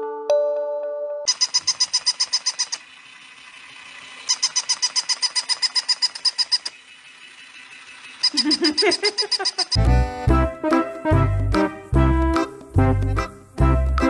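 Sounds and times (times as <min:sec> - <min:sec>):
toy puppy chirping clicks: 0:01.3 - 0:09.9.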